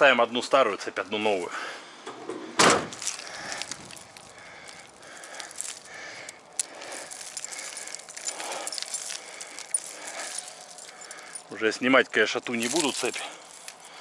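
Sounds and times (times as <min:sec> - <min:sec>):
snow chains jangling: 0:03.0 - 0:14.0.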